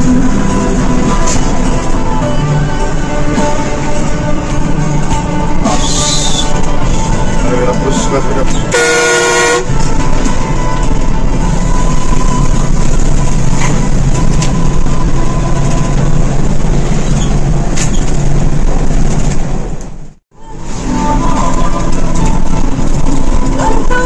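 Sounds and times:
bus engine and road noise: 0.0 - 24.0
horn blast: 7.4 - 10.1.

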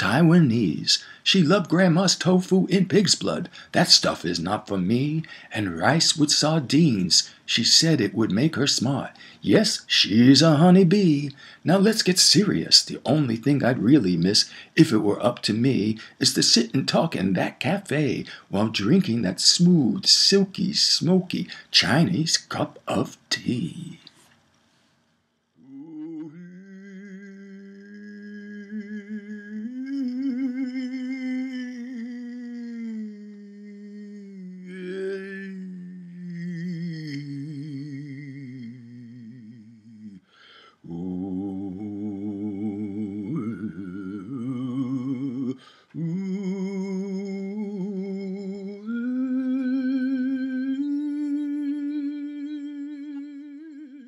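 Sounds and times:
person humming a slow melody: 25.6 - 54.0.

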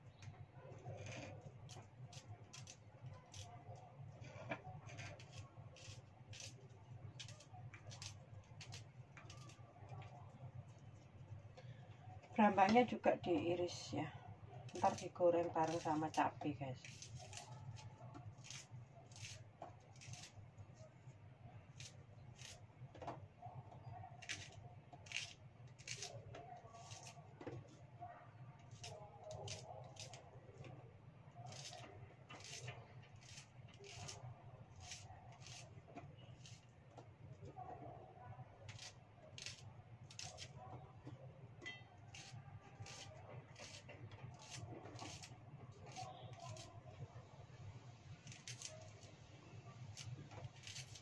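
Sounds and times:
knife slicing shallots: 4.9 - 9.6, 14.7 - 20.4, 21.7 - 22.6, 24.2 - 26.2, 26.8 - 27.2, 28.7 - 30.2, 31.5 - 36.7, 38.6 - 40.6, 41.9 - 46.7, 48.2 - 49.1, 49.9 - 51.0.

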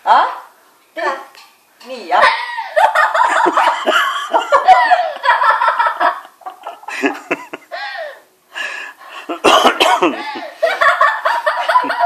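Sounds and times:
laughter: 2.2 - 7.7, 10.0 - 12.0.

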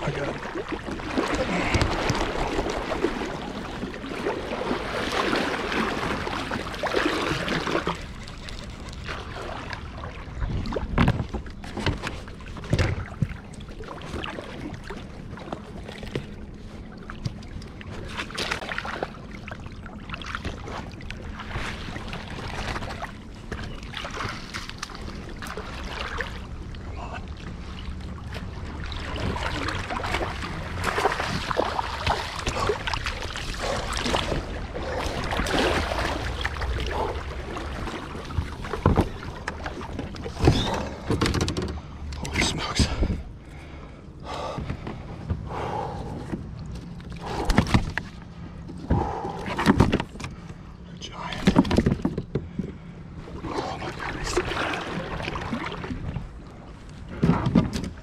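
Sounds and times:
water lapping against kayak hull: 0.0 - 58.0
gear knocking against boat: 38.4 - 41.8.

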